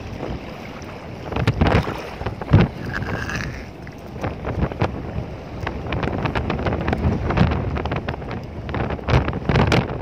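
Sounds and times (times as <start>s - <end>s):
shallow water splashing: 0.0s - 5.7s
wind buffeting microphone: 0.0s - 10.0s.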